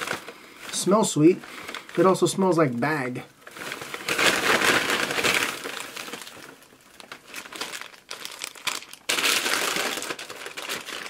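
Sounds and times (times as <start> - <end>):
paper wrappers crinkling: 0.0 - 11.0.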